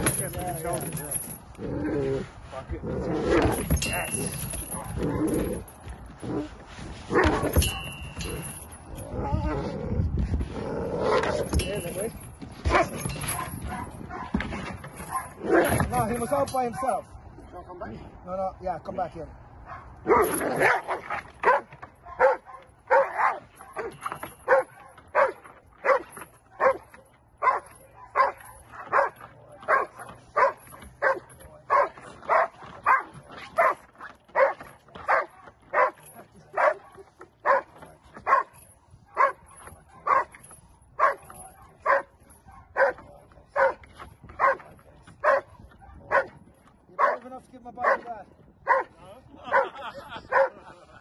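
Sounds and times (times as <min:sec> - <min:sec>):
dog barking: 0:12.7 - 0:14.4, 0:19.6 - 0:36.0, 0:36.6 - 0:40.4, 0:41.0 - 0:43.0, 0:43.6 - 0:43.8, 0:44.4 - 0:44.6, 0:45.2 - 0:46.4, 0:47.0 - 0:47.2, 0:47.8 - 0:50.7.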